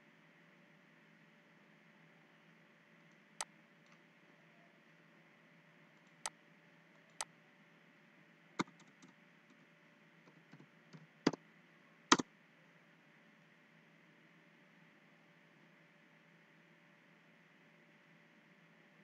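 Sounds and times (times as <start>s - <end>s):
computer mouse clicks: 8.6s - 9.1s.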